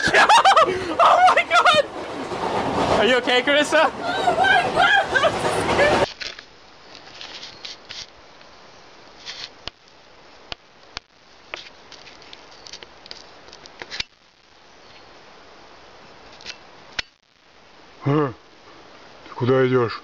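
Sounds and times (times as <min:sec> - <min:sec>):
faint hiss: 0:06.0 - 0:20.0.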